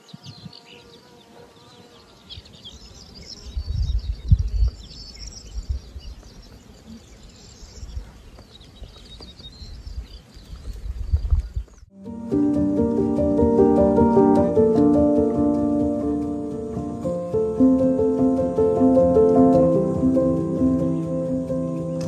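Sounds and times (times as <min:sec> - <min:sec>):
wind rumble on microphone: 0:00.0 - 0:00.6, 0:03.3 - 0:11.9
bees buzzing: 0:12.1 - 0:22.0.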